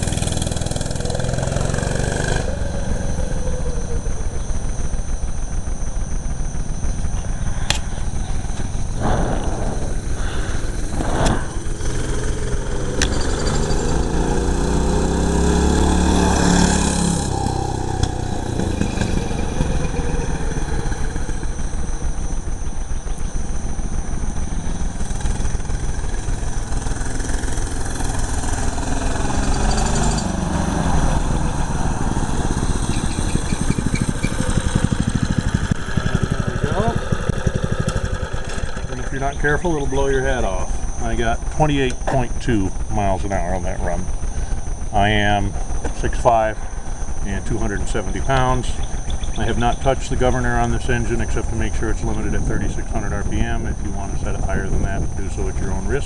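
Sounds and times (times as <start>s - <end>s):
minibike engine running flat out: 0.0s - 56.0s
vehicle passing by: 9.0s - 21.5s, 26.8s - 39.2s.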